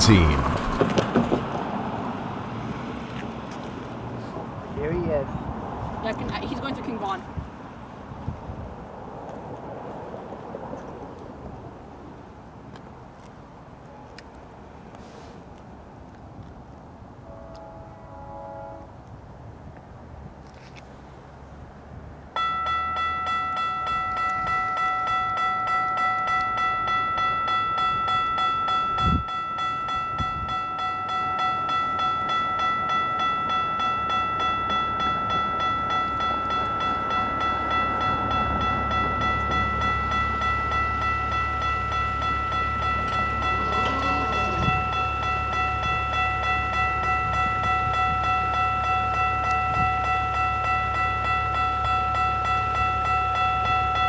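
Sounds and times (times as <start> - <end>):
level crossing warning bell: 0.0 - 0.8, 22.4 - 54.0
low rumble of passing train: 0.0 - 54.0.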